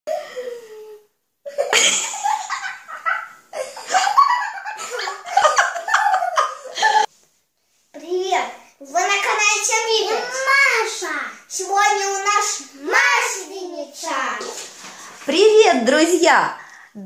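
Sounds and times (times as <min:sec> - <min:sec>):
children laughing: 0:01.4 - 0:07.1.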